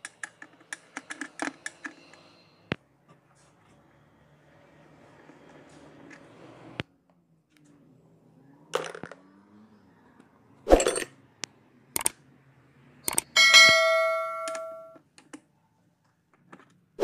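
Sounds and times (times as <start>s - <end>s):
metal hand tools clinking: 13.4s - 15.0s.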